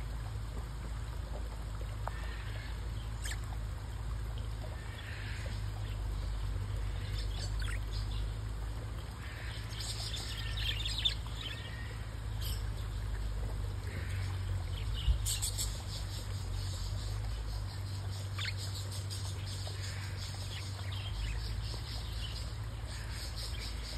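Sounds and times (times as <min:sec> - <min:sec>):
steady low hum: 0:00.0 - 0:23.9
budgerigars chirping: 0:14.8 - 0:23.9.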